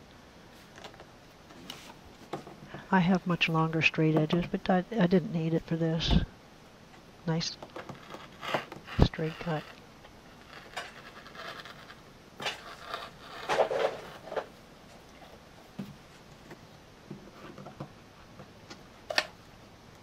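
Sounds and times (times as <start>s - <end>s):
vinyl rustling: 0.5s - 5.5s
vinyl sheet scraping and rubbing: 7.9s - 14.6s.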